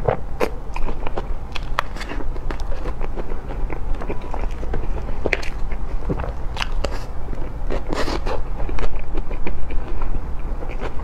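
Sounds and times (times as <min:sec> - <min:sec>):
wet chewing clicks: 0:00.4 - 0:11.0.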